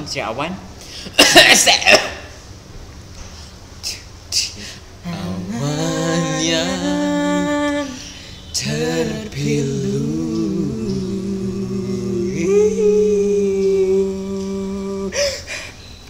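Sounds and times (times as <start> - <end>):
young men singing a cappella: 3.9 - 15.5.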